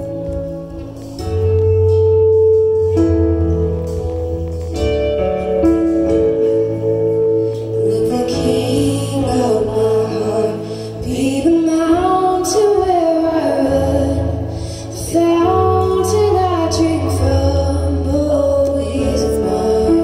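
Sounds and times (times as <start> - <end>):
instrumental accompaniment: 0.0 - 20.0
woman singing into microphone: 6.2 - 20.0.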